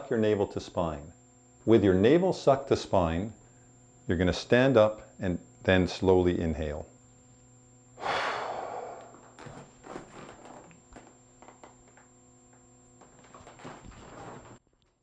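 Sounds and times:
man exhaling forcefully: 0:08.0 - 0:09.4
faint rustles: 0:09.1 - 0:12.0.

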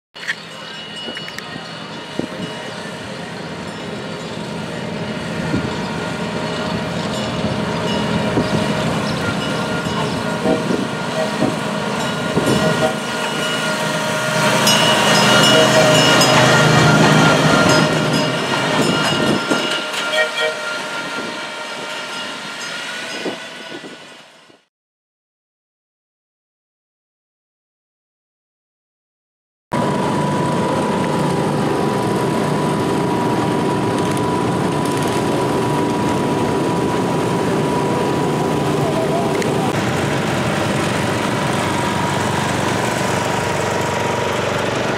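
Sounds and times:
garden tractor engines running: 0:00.2 - 0:21.2, 0:29.8 - 0:44.9
train cars rolling: 0:00.2 - 0:24.6, 0:29.8 - 0:44.9
thin high-pitched tone: 0:14.6 - 0:24.2
kiddie train motor running: 0:29.8 - 0:44.9.

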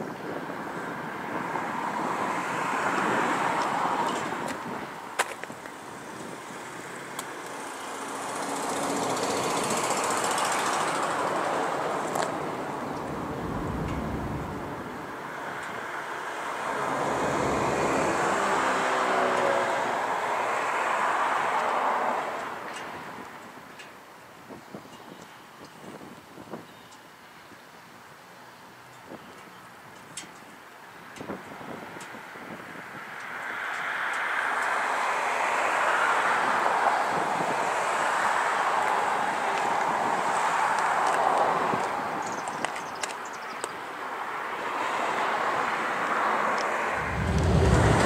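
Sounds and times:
vehicle passing: 0:08.0 - 0:22.3, 0:45.9 - 0:48.0.

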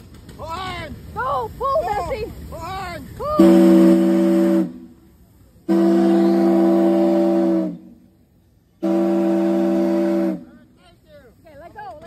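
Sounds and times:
steam whistle blasts: 0:03.4 - 0:05.0, 0:05.6 - 0:08.0, 0:08.8 - 0:10.5.

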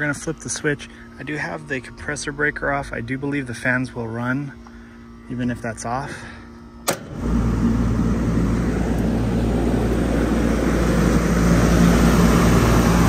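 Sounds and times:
fan motor hum: 0:00.0 - 0:13.0
fans rushing air: 0:06.8 - 0:13.0.

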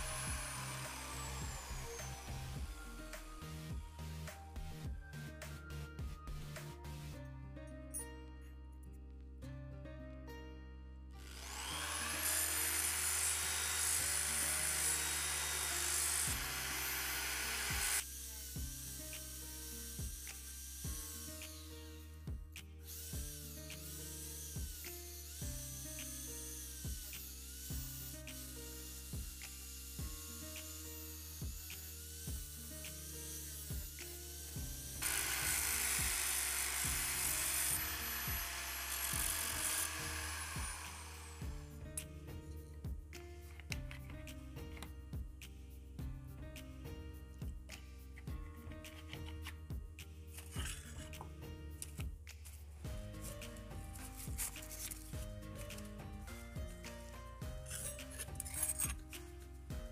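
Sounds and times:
steel sanded on sanding drum: 0:00.0 - 0:03.5, 0:11.5 - 0:21.8, 0:23.2 - 0:41.5
electric drill whining: 0:00.0 - 0:04.4, 0:11.2 - 0:22.2, 0:22.8 - 0:41.6
background music: 0:00.0 - 0:59.9.

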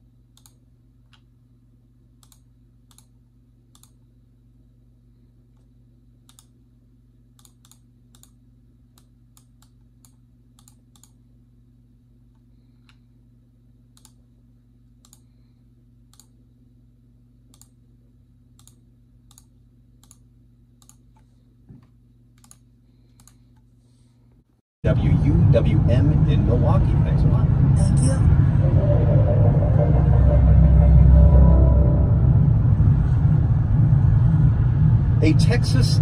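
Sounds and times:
steady low hum: 0:00.0 - 0:36.0
computer mouse clicks: 0:00.3 - 0:01.3, 0:02.2 - 0:04.0, 0:05.6 - 0:06.6, 0:07.4 - 0:11.2, 0:13.9 - 0:14.2, 0:15.0 - 0:15.3, 0:16.1 - 0:16.4, 0:17.5 - 0:17.8, 0:18.6 - 0:20.2, 0:20.8 - 0:21.3, 0:22.4 - 0:23.6.

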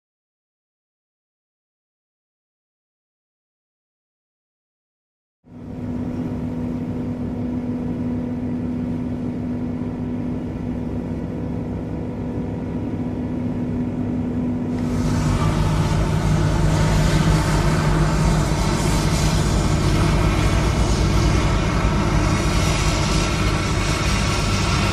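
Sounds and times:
diesel engines humming: 0:09.7 - 0:24.9.

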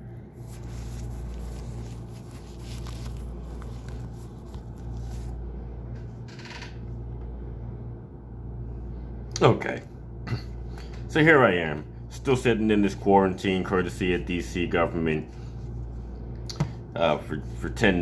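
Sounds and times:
low room hum: 0:00.0 - 0:18.0
phone handling rubbing and scraping: 0:00.4 - 0:06.1.

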